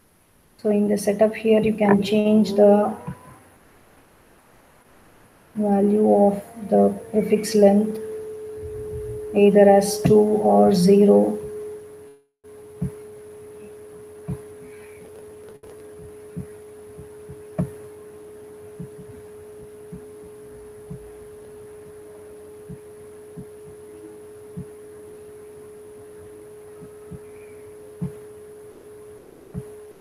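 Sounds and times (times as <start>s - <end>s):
steady hum: 0.0s - 30.0s
soft low knocks: 7.9s - 10.5s, 12.8s - 13.1s, 14.2s - 15.1s, 15.9s - 18.0s, 18.7s - 22.0s, 22.6s - 24.8s, 26.2s - 28.4s.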